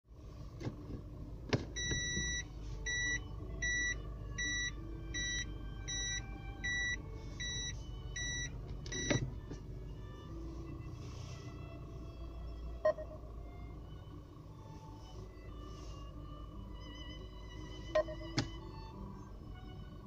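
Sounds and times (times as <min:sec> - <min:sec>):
engine idling rumble: 0:00.0 - 0:20.0
reverse warning beeps: 0:01.8 - 0:09.4, 0:12.8 - 0:13.3, 0:17.8 - 0:18.5.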